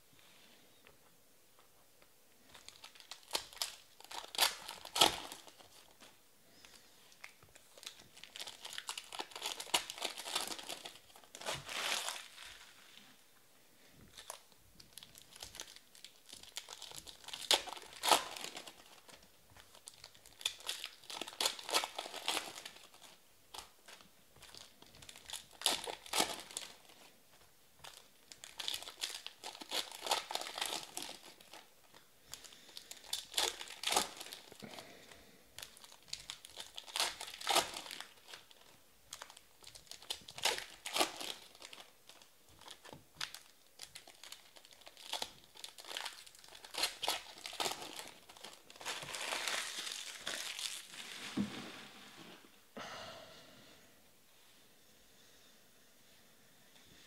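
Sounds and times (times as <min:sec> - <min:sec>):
foil wrappers tearing and crinkling: 0:02.5 - 0:06.1, 0:07.2 - 0:13.0, 0:14.1 - 0:27.2, 0:27.8 - 0:34.9, 0:35.6 - 0:51.4.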